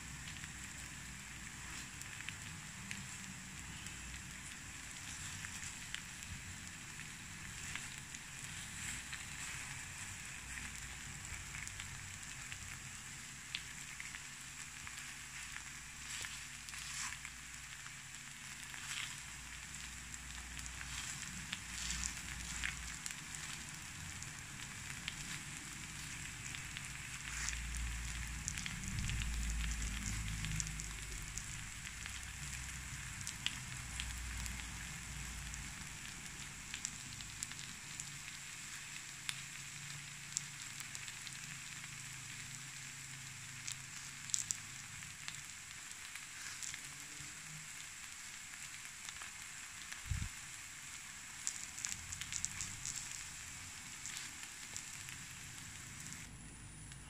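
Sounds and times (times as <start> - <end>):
batter sizzling in a pan: 0.0 - 56.3.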